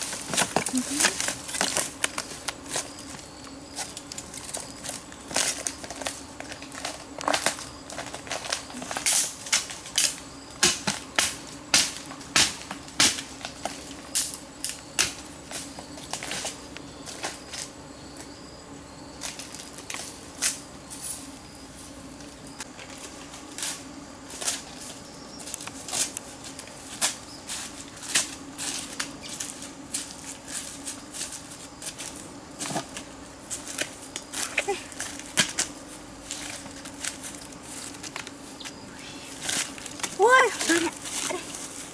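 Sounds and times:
footsteps crunching dry leaves: 0.0s - 9.0s, 22.7s - 41.9s.

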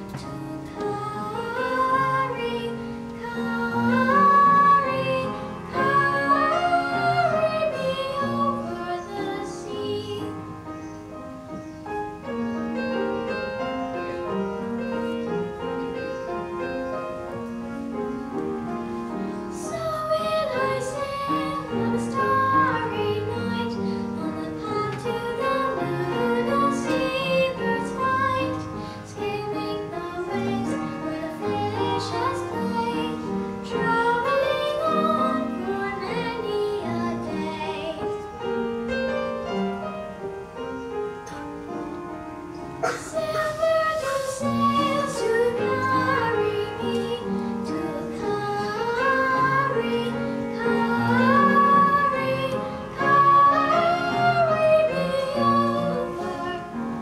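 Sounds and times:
girl singing: 0.0s - 10.8s, 19.5s - 38.6s, 42.8s - 57.0s
instrumental accompaniment: 0.0s - 57.0s.

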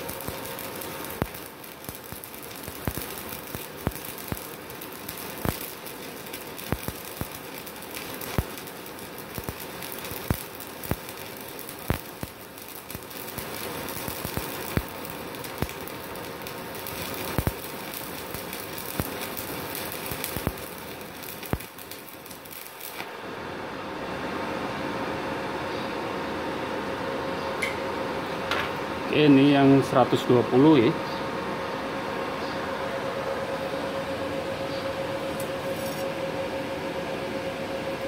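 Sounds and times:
welding arc crackling and popping: 0.0s - 23.2s, 35.3s - 36.1s
welder hum: 0.0s - 25.6s, 27.6s - 38.0s.

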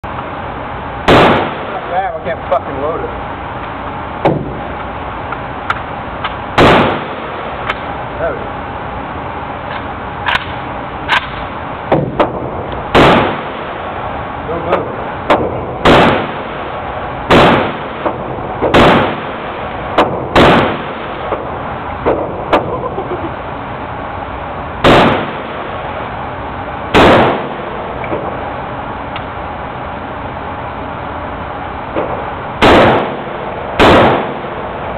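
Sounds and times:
rifle shots with echo: 1.1s - 1.9s, 6.6s - 7.5s, 11.1s - 13.8s, 14.7s - 16.7s, 17.3s - 21.4s, 24.8s - 25.8s, 26.9s - 28.3s, 32.0s - 34.7s.

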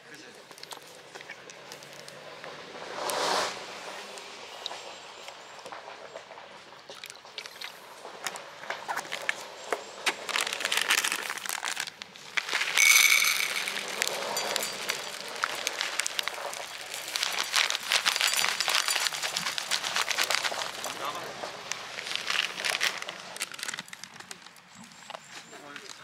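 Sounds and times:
dry kibble pouring into steel bowl: 10.3s - 23.8s
ringing clatter of pellets: 12.4s - 21.2s.

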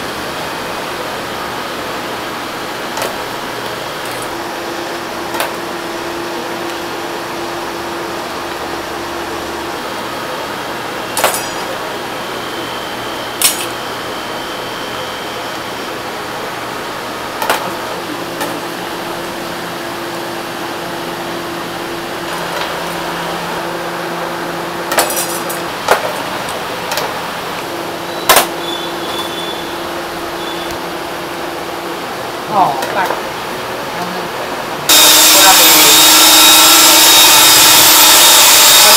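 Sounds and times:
steady background hum: 0.0s - 38.9s
metal dishes clinking: 24.9s - 25.6s.

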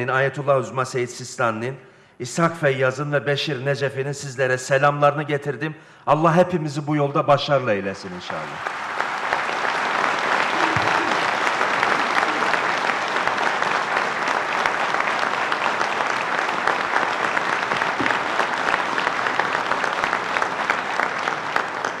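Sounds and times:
large audience applauding: 8.0s - 22.0s.

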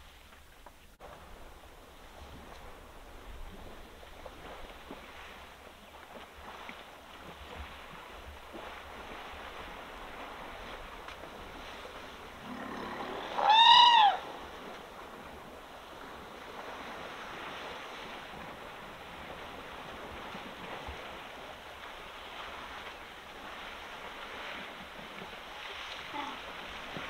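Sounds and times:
elephant trumpeting: 12.6s - 14.3s.

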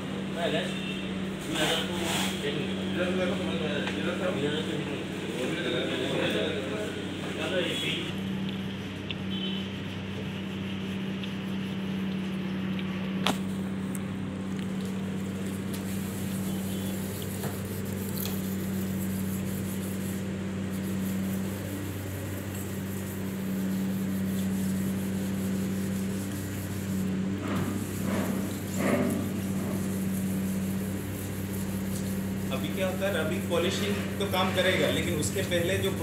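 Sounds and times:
low electrical hum: 0.0s - 36.0s
clay rubbing on wet paint: 7.4s - 13.9s, 14.6s - 36.0s.

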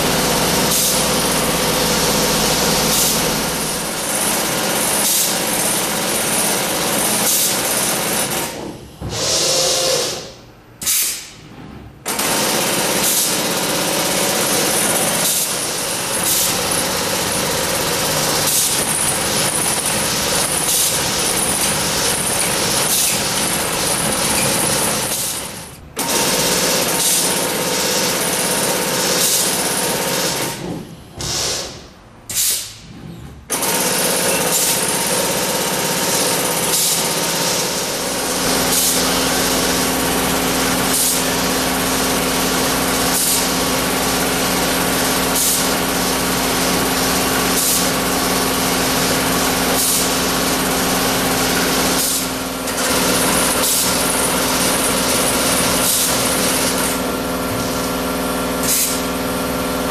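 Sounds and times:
tufting machine hammering: 0.0s - 59.9s
pneumatic hiss: 0.6s - 1.1s, 2.8s - 3.8s, 5.0s - 5.4s, 7.2s - 7.6s, 8.4s - 11.6s, 15.2s - 16.6s, 18.2s - 19.0s, 30.3s - 33.4s, 34.3s - 34.9s, 36.2s - 39.8s, 40.7s - 41.4s, 43.0s - 43.7s, 45.3s - 45.8s, 47.5s - 48.0s, 49.7s - 50.2s, 51.6s - 58.0s, 58.6s - 59.1s.

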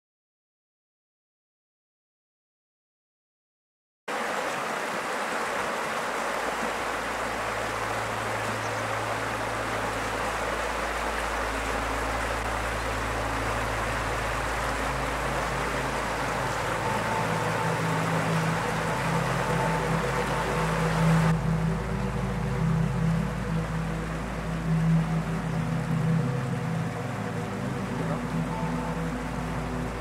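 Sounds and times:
river flowing over stones: 4.1s - 30.0s
low steady hum: 6.4s - 30.0s.

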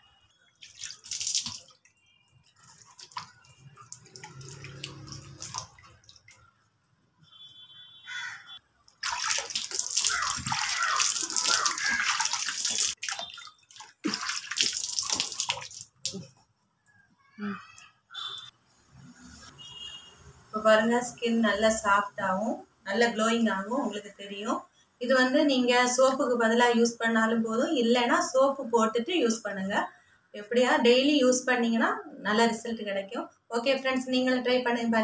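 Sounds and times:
water splashing on face: 0.6s - 6.5s, 8.9s - 16.4s.

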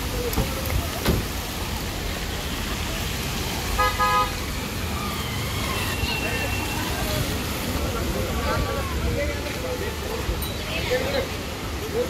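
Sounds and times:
cars driving on wet road: 0.0s - 12.0s
car horn toots: 3.8s - 4.3s.

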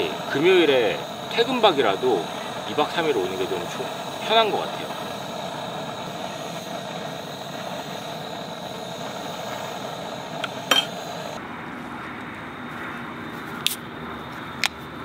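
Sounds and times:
steady rushing noise: 0.0s - 11.6s.

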